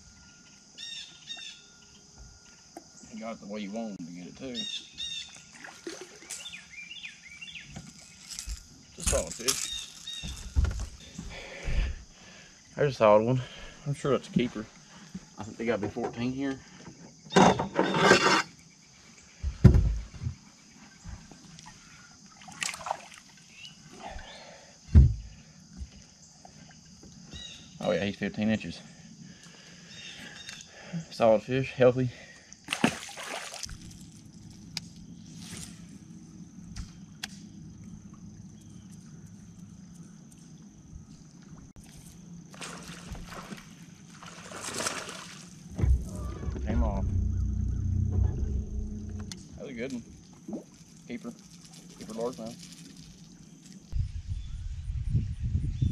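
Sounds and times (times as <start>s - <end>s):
water sloshing against hull: 5.2s - 6.6s, 41.4s - 53.9s
dull thumps on boat hull: 24.9s - 25.3s
brief water splash: 32.7s - 34.0s, 42.5s - 47.3s
electric trolling motor humming: 45.7s - 50.4s.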